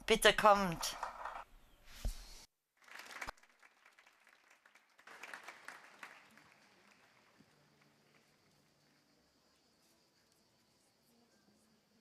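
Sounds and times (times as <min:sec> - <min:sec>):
faint audience applause: 0:02.8 - 0:08.6.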